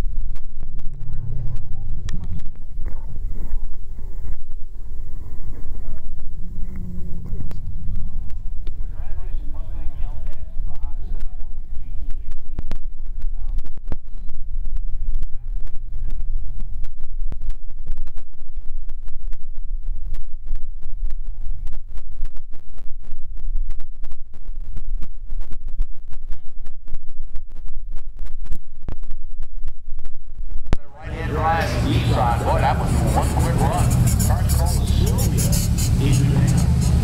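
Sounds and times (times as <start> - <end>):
sharp engine crackles: 30.8 - 37.0
race car engines idling: 30.9 - 37.0.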